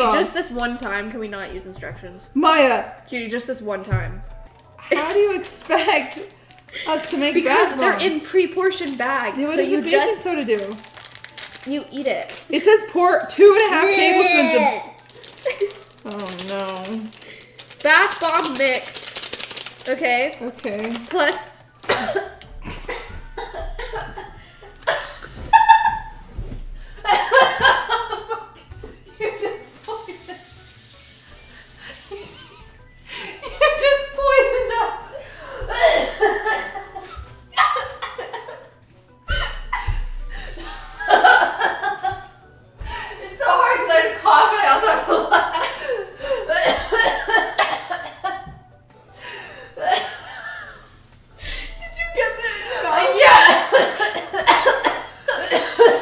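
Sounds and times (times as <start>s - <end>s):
woman coughing hard: 21.8s - 24.3s, 35.6s - 36.5s, 46.3s - 48.5s, 49.8s - 50.4s, 53.2s - 56.0s
people laughing: 21.9s - 26.2s, 27.0s - 28.6s, 29.2s - 30.5s, 31.7s - 43.1s, 44.6s - 48.5s, 52.4s - 56.0s.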